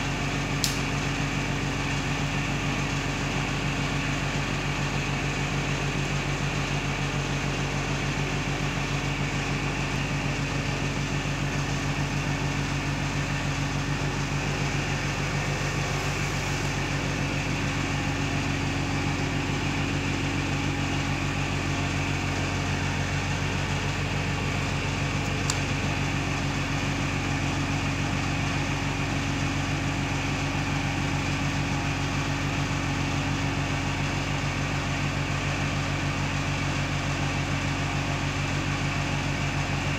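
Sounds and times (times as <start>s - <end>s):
low machine hum: 0.0s - 39.9s.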